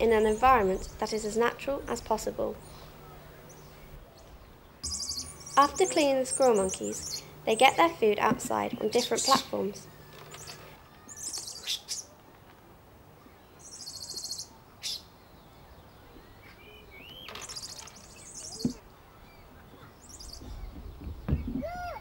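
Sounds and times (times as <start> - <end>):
lower chirps: 2.6 - 7.9
high-pitched chirping trills: 4.8 - 11.9.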